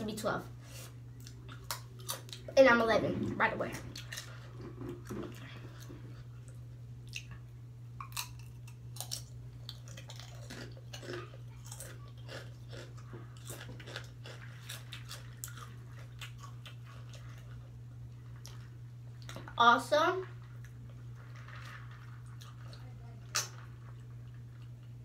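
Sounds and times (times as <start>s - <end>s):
chewing crunchy chips: 1.1s - 2.6s, 3.7s - 19.5s, 20.4s - 25.0s.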